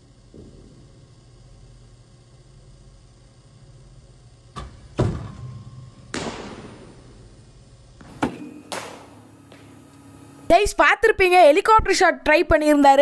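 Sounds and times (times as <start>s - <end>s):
low room hum: 0.0s - 13.0s
cricket bat hitting balls: 6.1s - 7.2s, 8.0s - 9.7s.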